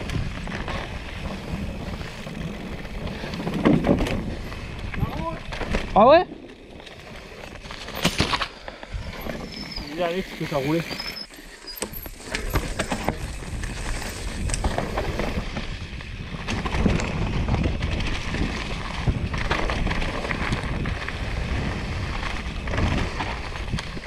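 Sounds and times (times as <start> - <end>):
bike knocking and rattling: 0.0 - 24.0
bike tyres rolling over dirt: 0.0 - 24.0
wind buffeting microphone: 12.0 - 24.0.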